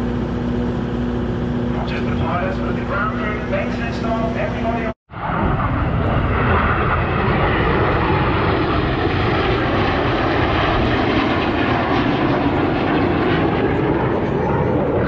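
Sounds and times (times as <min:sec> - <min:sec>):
jets flying past: 0:00.4 - 0:15.0.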